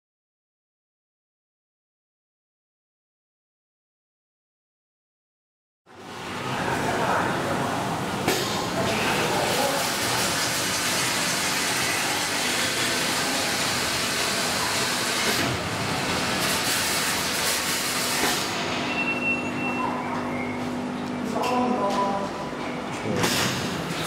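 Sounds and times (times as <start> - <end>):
low machine hum: 5.9 - 24.0.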